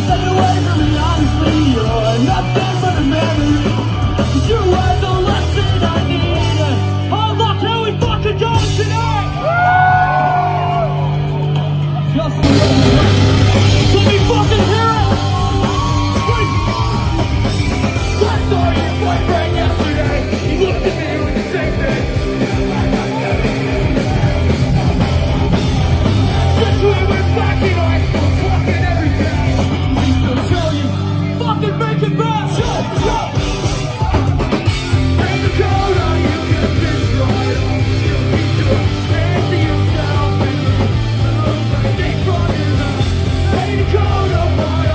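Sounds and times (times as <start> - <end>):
punk rock band playing live: 0.0 - 44.9
shouted sung vocals: 12.4 - 24.5.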